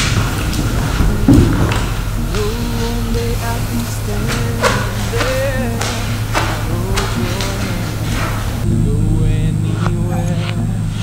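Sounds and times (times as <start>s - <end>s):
dull thump: 0.0s - 8.4s
low steady hum: 0.0s - 11.0s.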